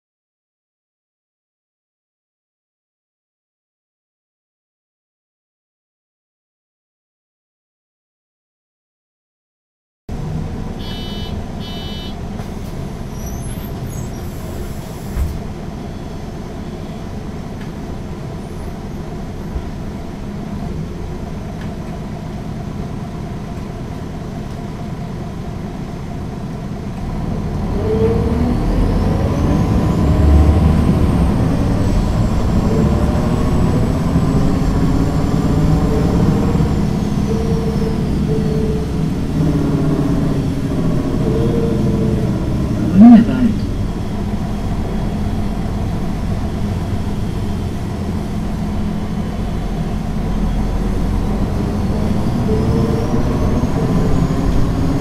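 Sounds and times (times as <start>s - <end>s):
bus engine idling and pulling away: 10.1s - 55.0s
short beeps: 10.8s - 12.2s
thump: 15.1s - 15.4s
high whine: 31.8s - 55.0s.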